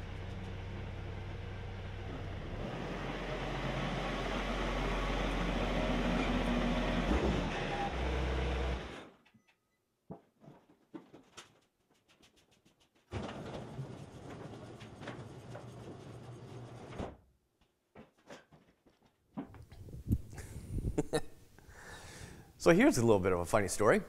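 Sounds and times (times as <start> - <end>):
tractor diesel engine running: 0.0 - 9.1.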